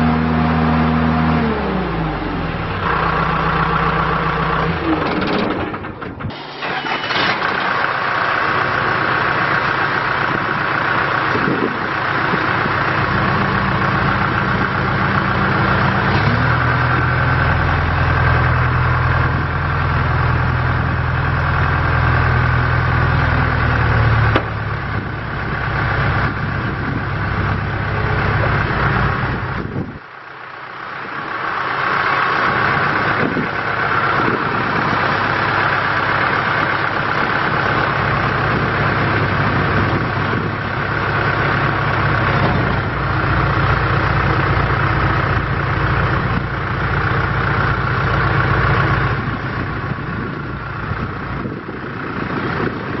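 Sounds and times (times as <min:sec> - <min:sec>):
diesel engine running: 0:00.0 - 0:53.0.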